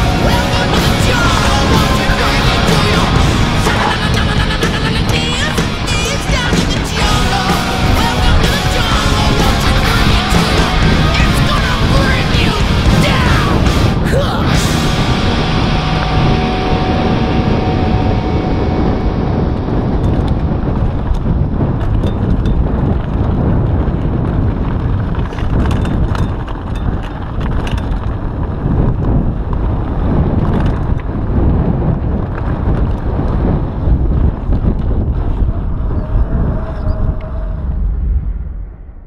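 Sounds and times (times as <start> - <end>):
wind buffeting microphone: 0.0 - 39.0
bike tyres on gravel: 14.7 - 36.6
bike clicks and rattles: 20.0 - 35.6.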